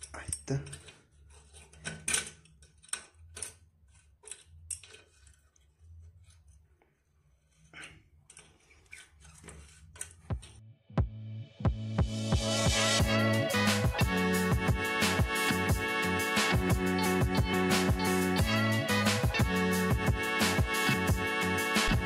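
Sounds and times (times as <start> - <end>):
wrench clicking and scraping on nut: 0.0 - 6.5, 8.2 - 10.6
music: 10.3 - 22.0.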